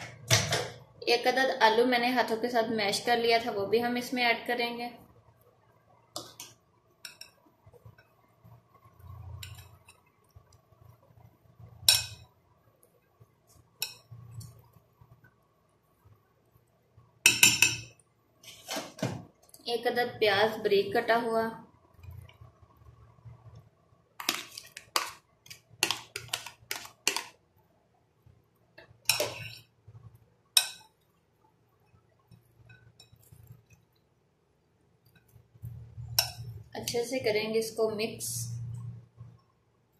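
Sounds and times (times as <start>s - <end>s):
spoon clinking against glass bowl: 17.3s - 18.0s
spoon scraping soft food: 24.2s - 27.4s.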